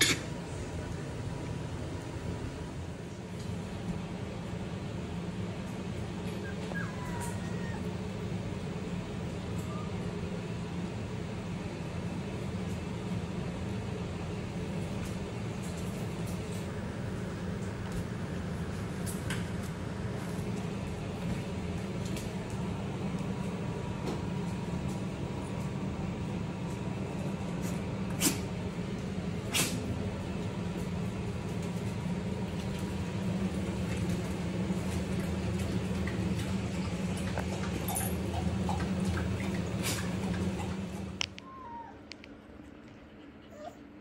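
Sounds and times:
steady low hum: 0.0 - 44.0
puppies playing and scuffling: 5.3 - 10.2, 14.6 - 44.0.

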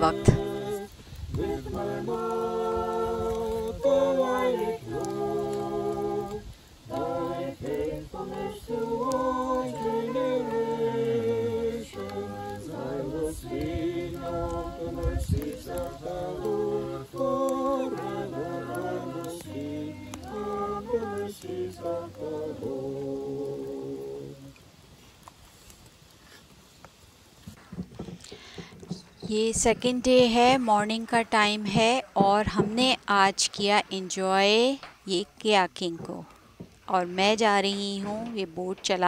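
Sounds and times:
voices singing a cappella: 0.0 - 24.7.

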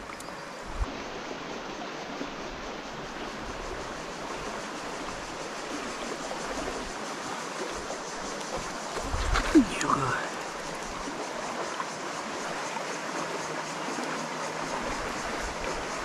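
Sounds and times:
stream running over stones: 0.0 - 16.0.

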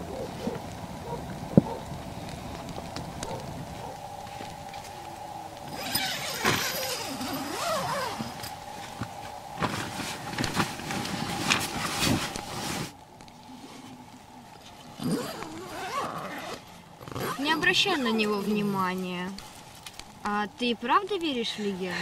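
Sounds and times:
nylon fabric rustling: 5.7 - 13.9, 15.0 - 20.2.

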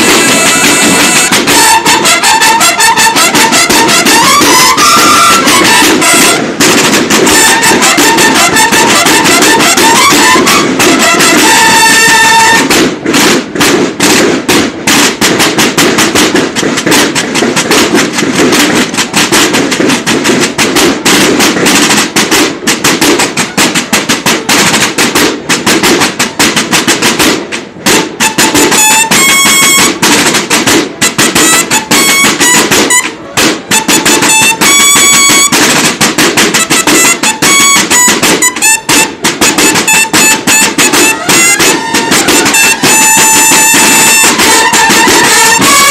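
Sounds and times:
bugle calls: 0.0 - 12.8, 28.2 - 30.1, 31.2 - 35.8, 36.5 - 45.9
field drums marching rhythms: 0.0 - 45.9.

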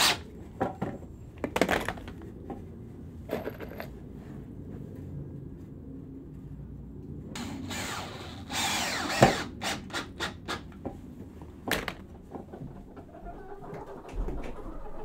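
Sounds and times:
cordless drill driving a screw: 7.4 - 10.3.

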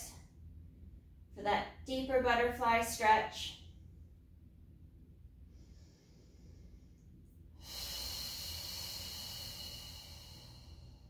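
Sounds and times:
woman breathing: 5.3 - 11.0.

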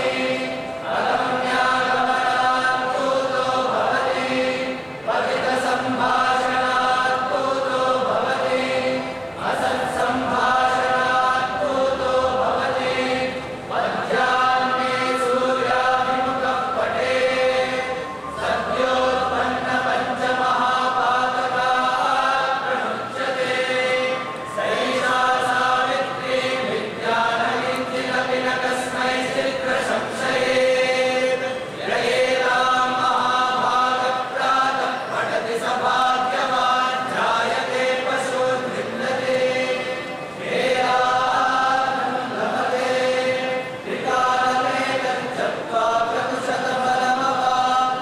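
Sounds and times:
group chanting in unison: 0.0 - 48.0.

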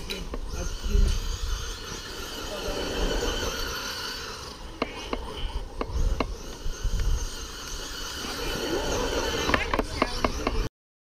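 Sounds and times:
wind on microphone: 0.0 - 3.8, 4.9 - 10.7
model car tyres on sand: 0.0 - 10.7
sharp clicks: 4.7 - 8.2.

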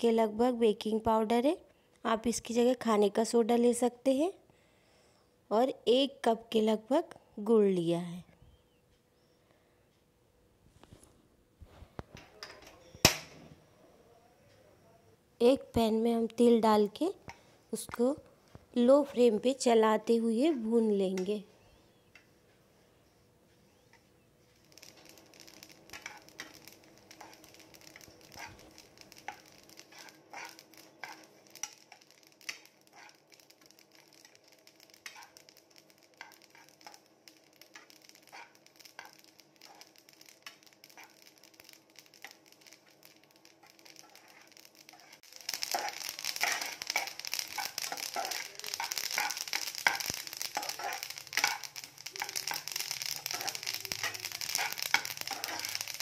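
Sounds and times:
seeds crackling in a pan: 0.0 - 4.2, 15.4 - 22.3, 23.5 - 56.0
spoon scraping a steel pan: 27.2 - 31.3, 44.0 - 51.7, 52.3 - 55.8.

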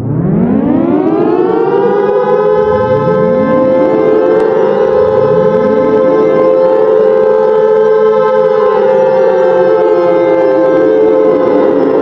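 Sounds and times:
civil defense siren rising: 0.0 - 12.0
fainter siren rises: 0.0 - 12.0.

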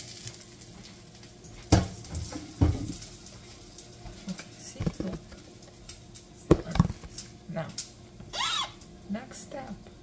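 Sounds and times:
frying pan knocking on cookware: 6.5 - 7.1.

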